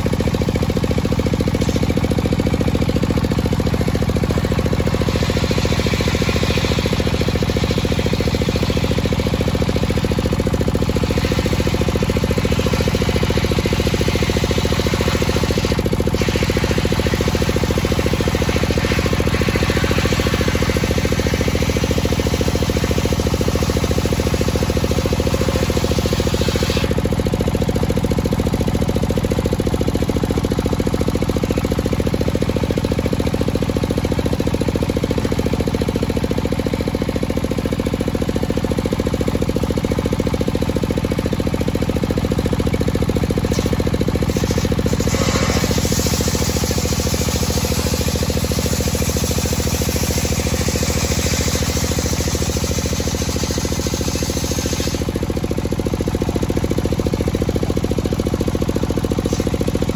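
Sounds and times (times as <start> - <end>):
circular saw drone: 11.0 - 27.1
saw blade cutting wood hiss: 13.9 - 27.1, 43.4 - 55.3, 59.2 - 59.6.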